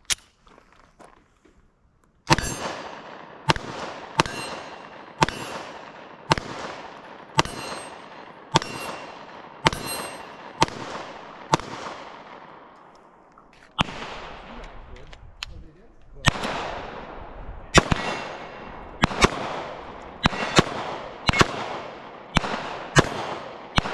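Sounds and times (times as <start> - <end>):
steel targets ringing: 2.3 - 2.8, 4.2 - 5.7, 7.4 - 10.6
pistol shots echoing: 2.3 - 12.8, 13.8 - 14.6, 16.2 - 23.9.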